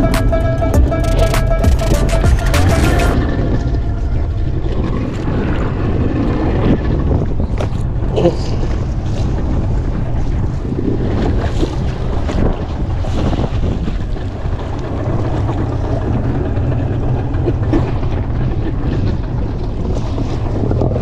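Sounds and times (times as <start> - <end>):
steady low rumble: 0.0 - 11.1
wind buffeting microphone: 3.2 - 21.0.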